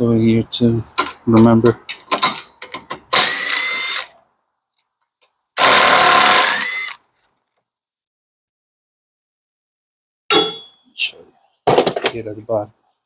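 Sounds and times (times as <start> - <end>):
electric ratchet running: 3.2 - 4.1, 5.6 - 7.0.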